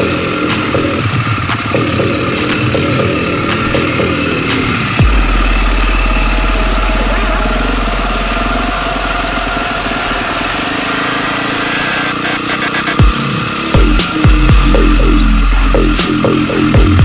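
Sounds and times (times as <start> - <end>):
dirt bike engine running: 0.0 - 17.0
deep low rumble: 1.0 - 10.2.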